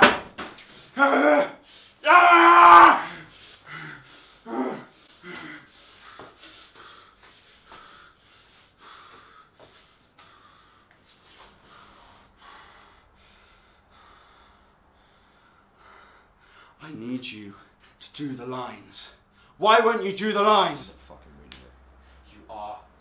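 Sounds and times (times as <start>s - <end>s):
man breathing heavily: 1.6s - 2.0s, 3.0s - 16.8s, 21.9s - 22.3s.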